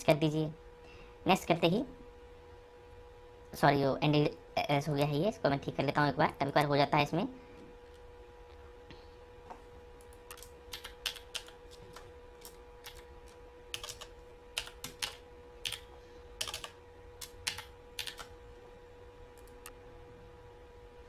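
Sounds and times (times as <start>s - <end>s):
faint steady hum: 0.0s - 21.0s
typing on computer keyboard: 10.3s - 13.0s, 13.7s - 18.3s.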